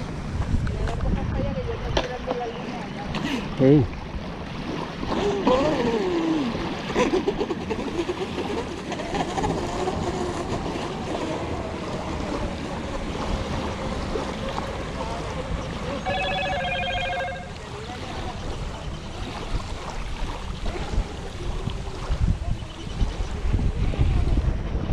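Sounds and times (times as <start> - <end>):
wind noise on microphone: 0.0 - 2.3, 18.4 - 24.9.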